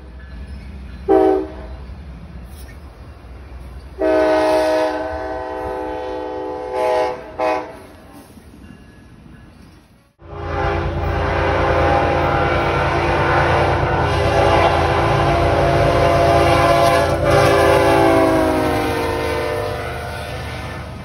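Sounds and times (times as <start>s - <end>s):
train engine rumble: 0.0s - 21.0s
locomotive horn blast: 1.1s - 1.7s, 4.0s - 7.9s, 10.2s - 20.9s.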